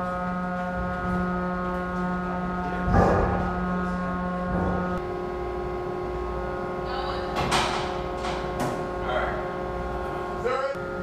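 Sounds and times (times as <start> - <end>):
machinery hum: 0.0 - 11.0.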